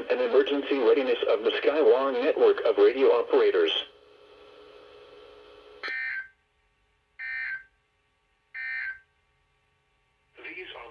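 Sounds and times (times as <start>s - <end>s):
faint radio hum: 0.0s - 5.8s, 10.3s - 10.9s.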